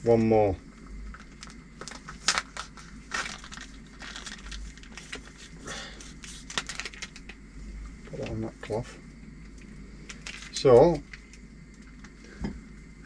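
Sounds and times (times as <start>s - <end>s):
plastic pouch crinkling: 1.1s - 7.4s, 10.1s - 12.1s.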